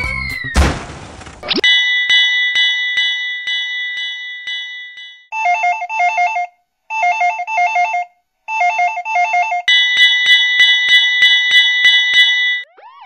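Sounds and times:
alarm bell clanging: 0:01.6 - 0:05.3, 0:09.7 - 0:12.7.

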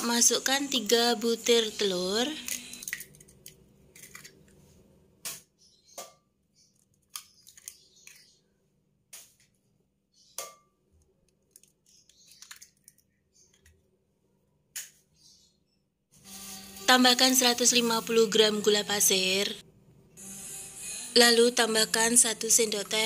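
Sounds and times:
eggshell crackling: 0:02.2 - 0:04.6, 0:06.6 - 0:08.4, 0:11.0 - 0:13.8.

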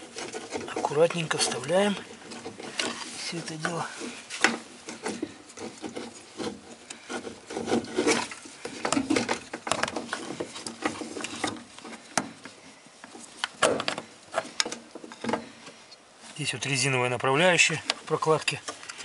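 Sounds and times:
metal plate scraping: 0:00.0 - 0:12.1
small clicks and knocks: 0:00.0 - 0:16.0.

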